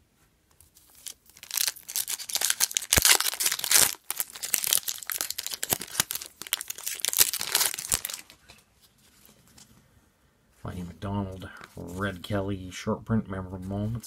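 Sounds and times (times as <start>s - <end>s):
foil wrapper tearing and crinkling: 0.8s - 8.4s.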